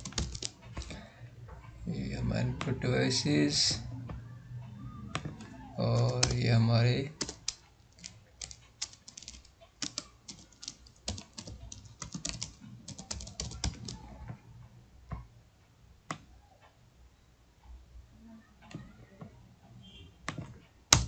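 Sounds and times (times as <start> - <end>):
typing on computer keyboard: 0.0 - 1.0, 5.1 - 14.3, 20.3 - 21.0.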